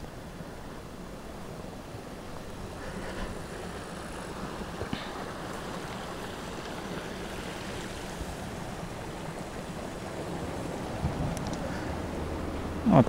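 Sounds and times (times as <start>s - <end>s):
wind on microphone: 9.8s - 12.8s.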